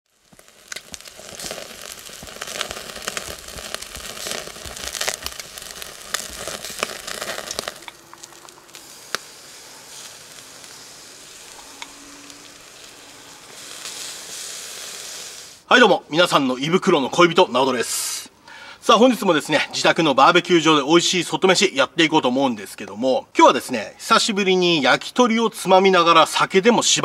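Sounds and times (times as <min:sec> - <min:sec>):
meat sizzling on a grill: 0:00.1 - 0:15.8
crackles and pops: 0:00.1 - 0:17.8.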